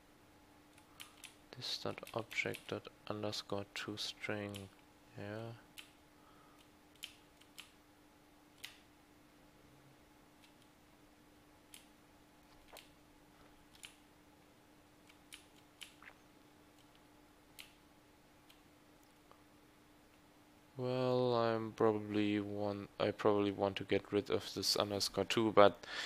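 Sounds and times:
faint steady hum: 0:00.0 - 0:26.0
computer keyboard keystrokes: 0:00.7 - 0:02.7, 0:06.6 - 0:07.8.

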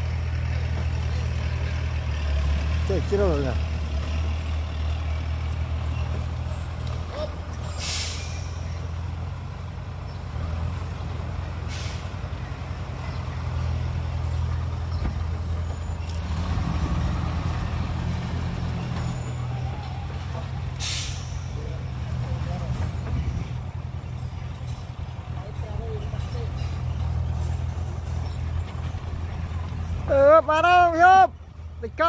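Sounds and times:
dump truck diesel engine: 0:00.0 - 0:32.0
air-brake hisses: 0:07.7 - 0:08.6, 0:11.7 - 0:12.2, 0:20.8 - 0:21.6.

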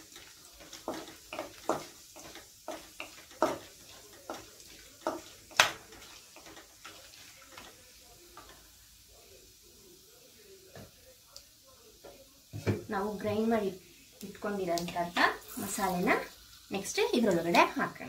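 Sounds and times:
faint sizzle: 0:00.0 - 0:18.0.

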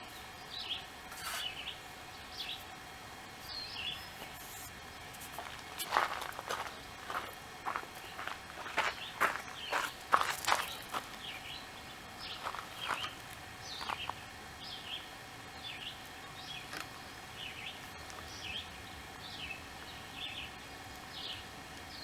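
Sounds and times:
bird chirping: 0:00.0 - 0:02.7, 0:03.5 - 0:05.1, 0:06.4 - 0:22.0
outdoor background noise: 0:00.0 - 0:22.0.

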